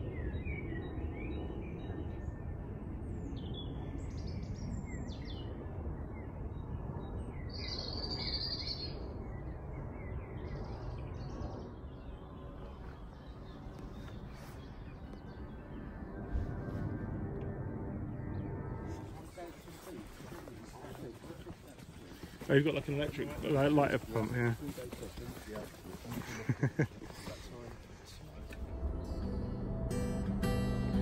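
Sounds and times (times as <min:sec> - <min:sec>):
songbirds chirping and singing: 0:00.0 - 0:17.1, 0:18.0 - 0:31.0
low outdoor rumble: 0:08.9 - 0:31.0.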